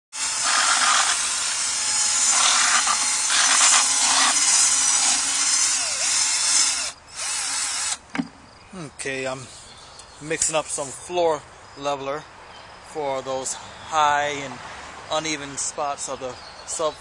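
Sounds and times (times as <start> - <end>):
drill mixing slurry in bucket: 0.1 - 8.0.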